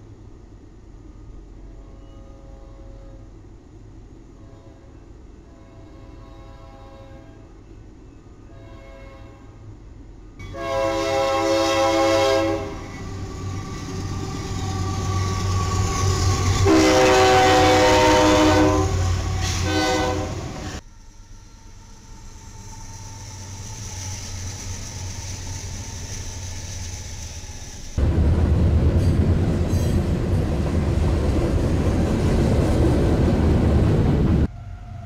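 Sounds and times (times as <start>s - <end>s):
freight train passing: 0.0s - 35.0s
locomotive air horn blasts: 1.7s - 3.3s, 4.4s - 7.5s, 8.5s - 9.6s, 10.4s - 13.0s, 16.6s - 20.8s
diesel engine rumble: 23.2s - 34.5s.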